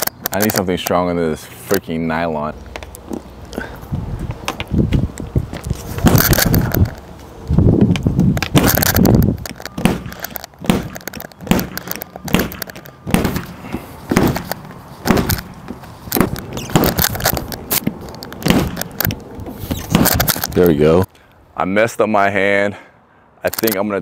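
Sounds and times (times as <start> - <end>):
dent puller tab cracking: 6.1 - 7.0, 8.0 - 13.5, 14.2 - 20.7
dull thuds: 7.8 - 20.6.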